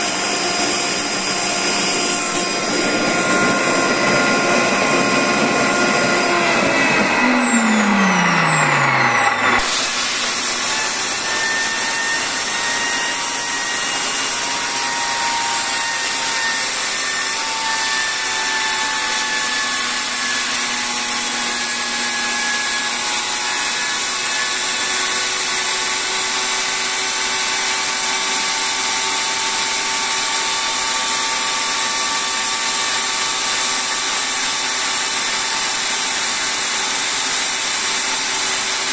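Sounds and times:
faint rotor whine: 0.0 - 12.8
jet engine whine winding down: 0.0 - 38.9.

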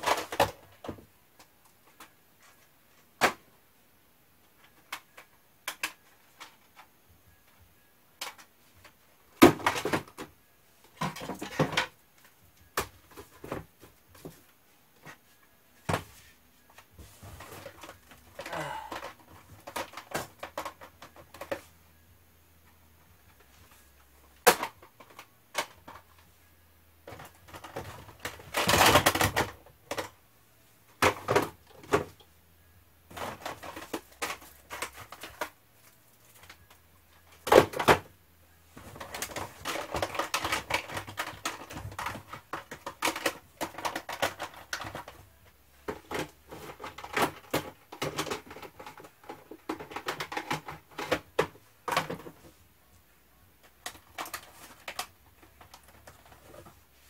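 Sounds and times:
plastic cases clicking: 38.8 - 45.2, 45.8 - 52.4.

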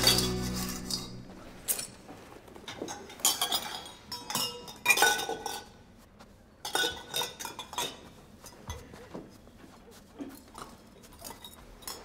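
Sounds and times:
metal cups clinking: 2.7 - 5.8.

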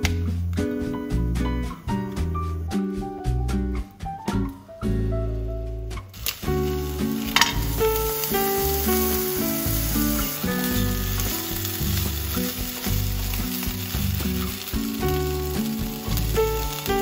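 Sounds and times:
background music with steady bass: 0.0 - 17.0
chicken sizzling in a frying pan: 6.1 - 17.0.

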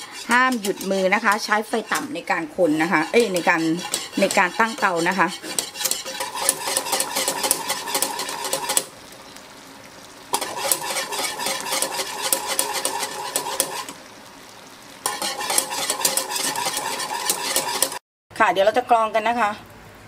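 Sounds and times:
whisk clicking against metal pan: 0.0 - 8.9, 10.3 - 14.0, 15.0 - 18.0.

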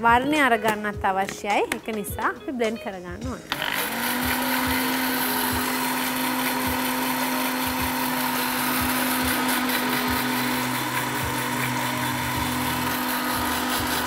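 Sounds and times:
blender running: 3.5 - 14.0.

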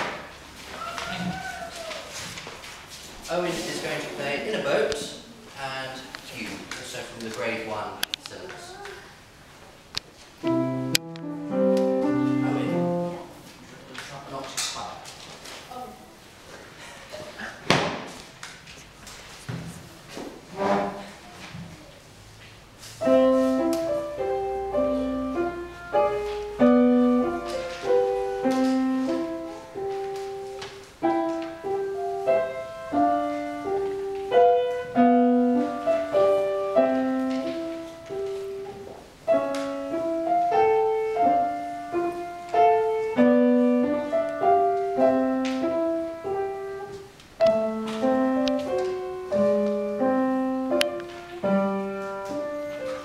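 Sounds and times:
upright piano playing: 10.4 - 13.5, 23.0 - 53.0.

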